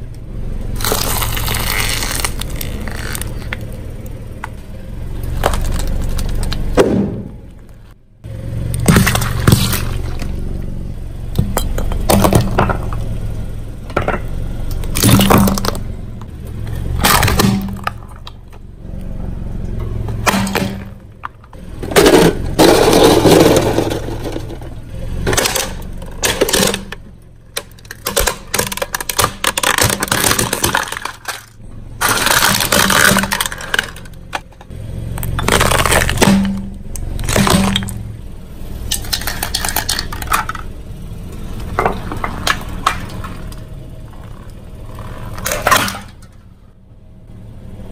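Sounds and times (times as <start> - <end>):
low car engine hum: 0.0 - 47.9
tyre crushing brittle objects: 0.8 - 3.8, 4.4 - 7.9, 8.8 - 10.4, 14.0 - 15.9, 16.6 - 18.6, 20.0 - 38.1, 38.8 - 40.7.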